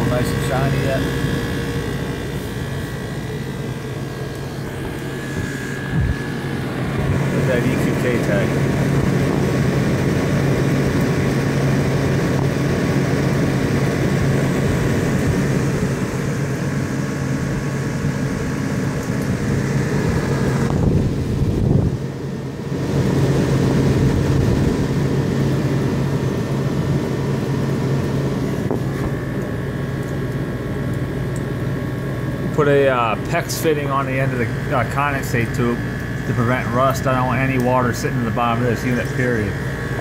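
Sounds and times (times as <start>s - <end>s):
compressor humming: 0.0s - 40.0s
fan rushing: 0.0s - 40.0s.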